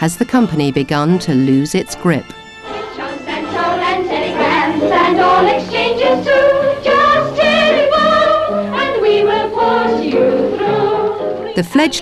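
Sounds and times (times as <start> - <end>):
instrumental accompaniment: 0.0 - 12.0
women singing together: 2.7 - 12.0.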